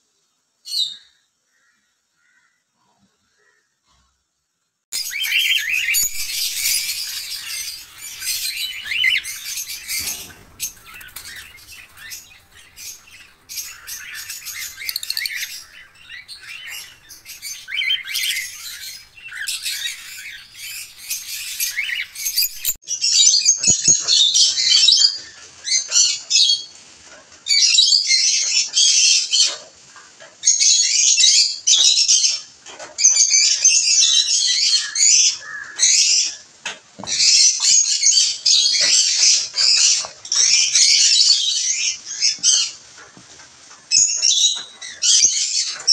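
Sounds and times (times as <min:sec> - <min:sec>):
cockatiels calling: 0:05.0 - 0:22.8
lovebirds chattering in bursts: 0:05.0 - 0:22.8.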